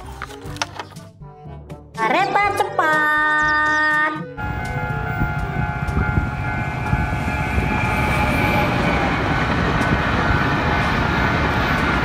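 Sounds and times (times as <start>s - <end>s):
passenger train passing: 4.4s - 12.0s.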